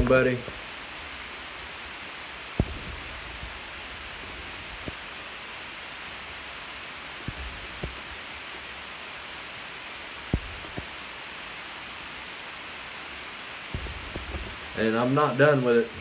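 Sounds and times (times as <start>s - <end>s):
background hiss: 0.0s - 16.0s
soft low thumps: 2.6s - 5.1s, 7.2s - 8.2s, 10.3s - 10.9s, 13.7s - 14.8s.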